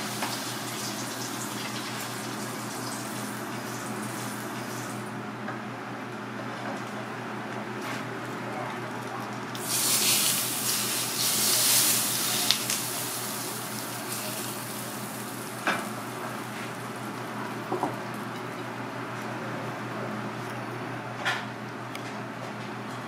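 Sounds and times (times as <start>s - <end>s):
hot sauce sizzling: 0.0s - 5.0s, 9.6s - 17.2s.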